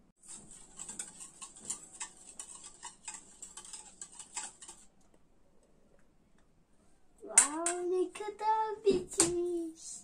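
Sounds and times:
whisk clicking in metal bowl: 0:00.2 - 0:04.9.

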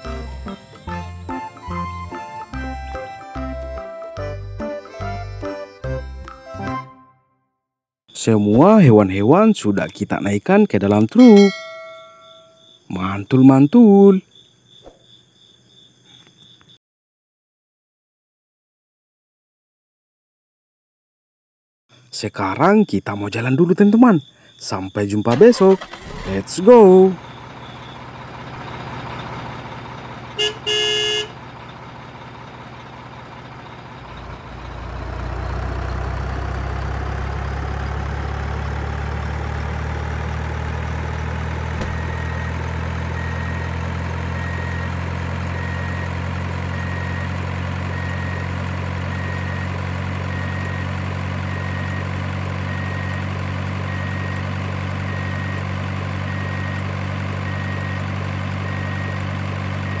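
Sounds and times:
large truck engine idling: 0:00.0 - 0:06.0, 0:25.4 - 1:00.0
faint high beep: 0:11.2 - 0:12.8, 0:58.6 - 1:00.0.

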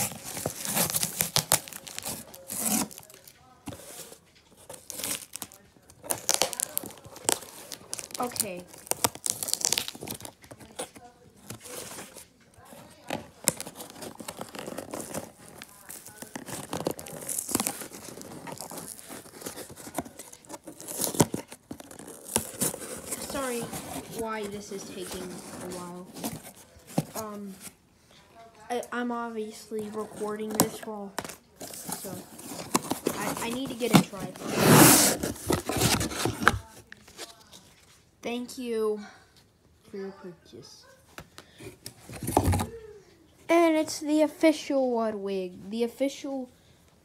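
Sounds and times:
packing tape tearing: 0:00.0 - 0:04.0, 0:04.6 - 0:12.2, 0:13.0 - 0:27.7, 0:29.9 - 0:37.6
cardboard flaps rustling: 0:00.0 - 0:27.8, 0:29.8 - 0:37.9, 0:41.6 - 0:42.8.

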